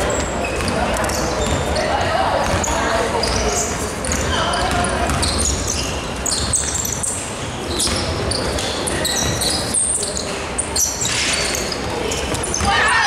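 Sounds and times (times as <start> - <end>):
sneakers squeaking: 0.0 - 13.0
voices calling out: 0.1 - 13.0
basketball bouncing on hardwood court: 0.6 - 8.5.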